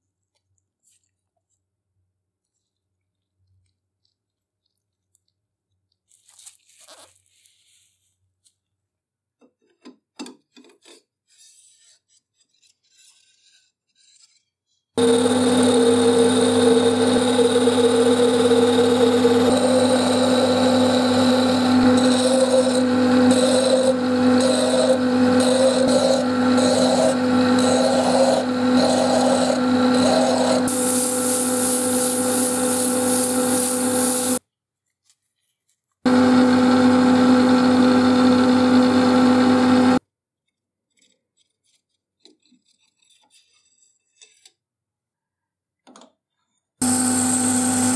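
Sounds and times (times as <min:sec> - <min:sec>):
power tool humming: 0:15.0 - 0:34.4, 0:36.1 - 0:40.0, 0:46.8 - 0:47.9
bright hiss: 0:30.7 - 0:34.4.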